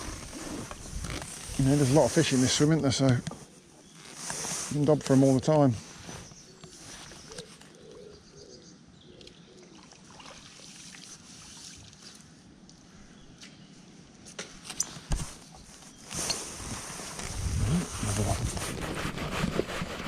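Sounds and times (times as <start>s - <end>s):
faint bird calls: 5.9s - 9.8s.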